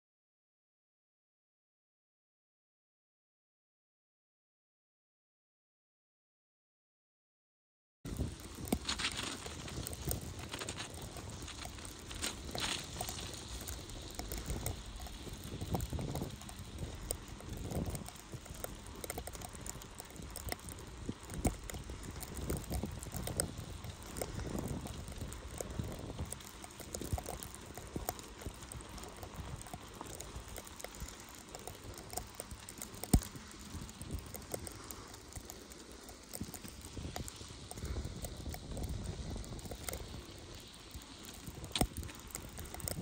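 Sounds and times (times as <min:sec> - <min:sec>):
bicycle knocks and rattles: 0:08.1 - 0:40.3
bicycle rumbling through snow: 0:08.1 - 0:43.0.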